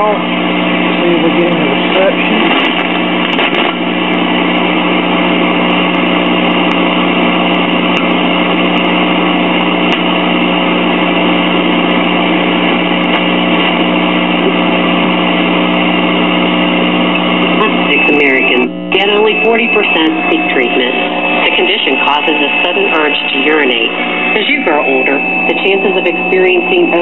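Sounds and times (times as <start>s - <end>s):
low hum: 0.0s - 27.0s
static hiss from speaker: 0.0s - 27.0s.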